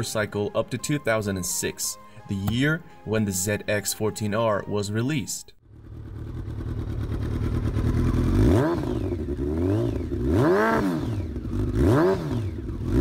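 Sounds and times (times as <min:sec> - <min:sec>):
motorcycle engine revving: 0:05.6 - 0:13.0.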